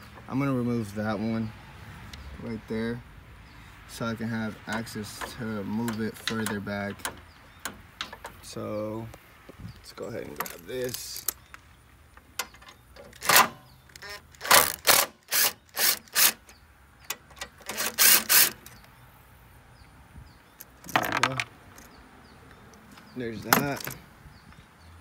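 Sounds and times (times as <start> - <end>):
hand ratchet clicking: 12.4 - 16.5, 17.1 - 18.8.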